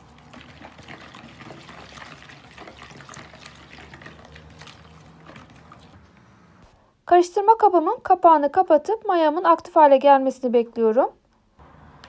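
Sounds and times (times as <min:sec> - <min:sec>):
batter sloshing: 0:00.0 - 0:06.0.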